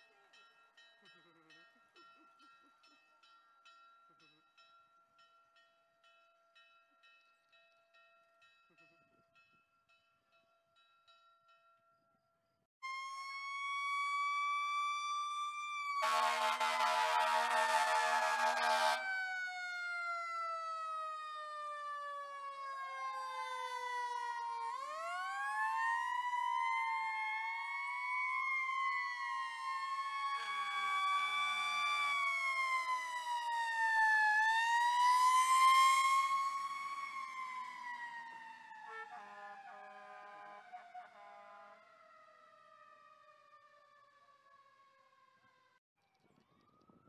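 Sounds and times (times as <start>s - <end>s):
siren winding down: 12.8s - 39.7s
fire truck sirens wailing: 12.8s - 45.6s
horn blast: 16.0s - 19.1s, 38.9s - 41.8s.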